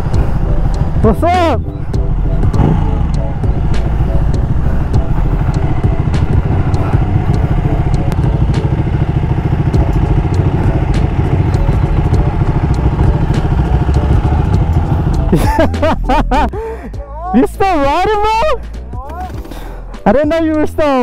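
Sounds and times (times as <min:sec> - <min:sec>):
motorcycle engine running: 0:00.0 - 0:16.6.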